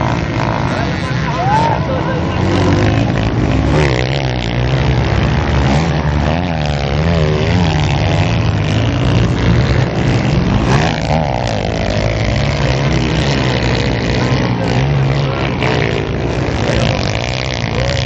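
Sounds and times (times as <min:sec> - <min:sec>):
motocross bike engines revving: 0:00.0 - 0:18.0.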